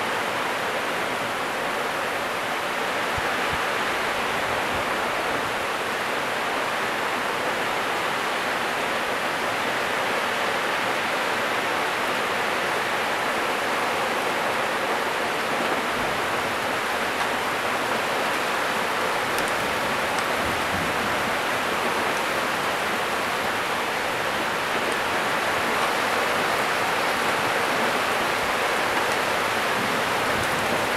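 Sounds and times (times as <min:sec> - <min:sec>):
heavy rain pouring: 0:00.0 - 0:30.9.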